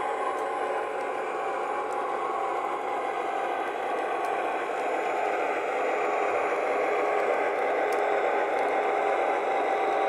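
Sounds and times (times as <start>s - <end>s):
model diesel engine sound: 0.0s - 10.0s
model train running gear: 0.0s - 10.0s.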